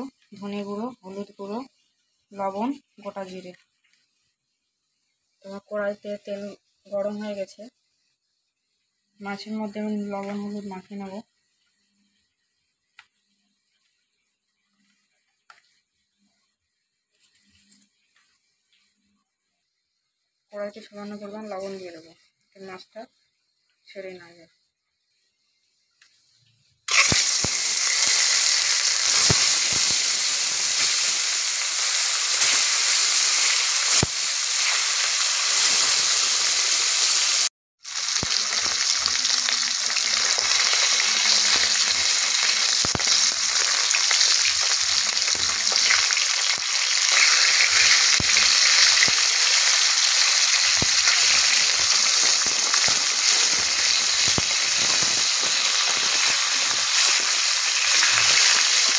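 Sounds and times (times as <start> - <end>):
fish frying in hot oil: 26.0 - 58.9.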